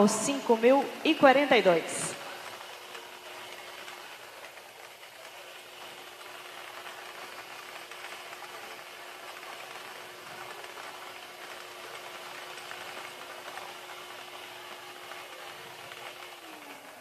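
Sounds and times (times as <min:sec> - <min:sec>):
blower humming: 0:00.0 - 0:17.0.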